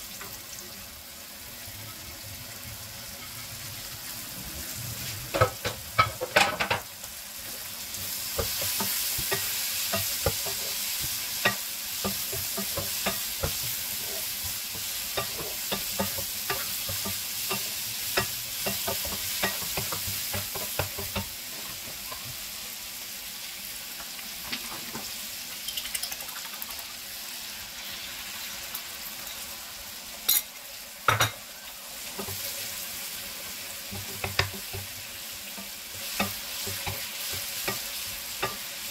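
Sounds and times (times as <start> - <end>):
vegetables sizzling in a pan: 0.0 - 38.9
spatula scraping a pan: 3.0 - 3.8, 7.9 - 22.4
spatula knocking on pan: 8.4 - 22.0, 33.9 - 35.0.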